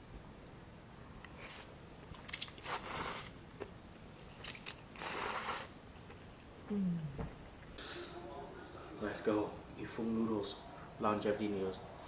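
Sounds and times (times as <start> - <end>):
person slurping noodles: 2.6 - 3.3, 5.0 - 5.7.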